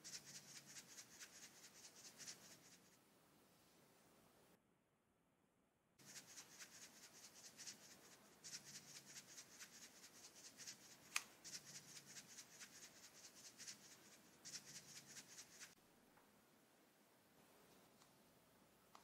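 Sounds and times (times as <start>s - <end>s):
glitter shaken from plastic bottle: 0.0s - 2.9s, 6.0s - 15.8s.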